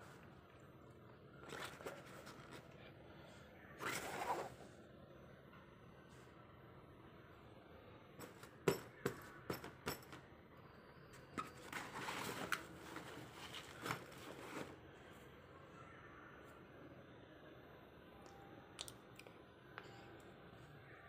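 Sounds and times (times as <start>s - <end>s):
bag clicks and knocks: 8.2s - 10.2s
fabric rustling and scraping: 11.4s - 14.9s.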